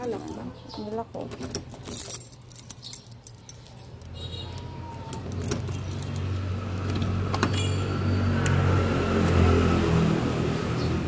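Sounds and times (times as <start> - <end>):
keys jingling: 0.0 - 7.1
wooden door unlocking and opening: 1.2 - 7.7.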